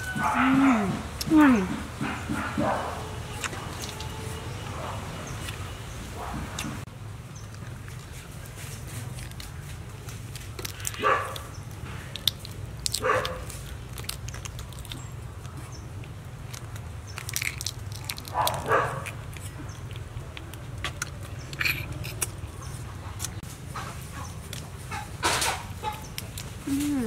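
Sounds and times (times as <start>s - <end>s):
prawn shells cracking: 9.0s - 22.5s.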